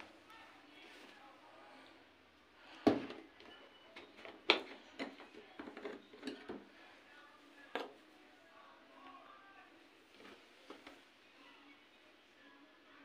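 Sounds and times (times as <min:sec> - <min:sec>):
plastic bottles knocking and clicking: 0:02.8 - 0:06.7.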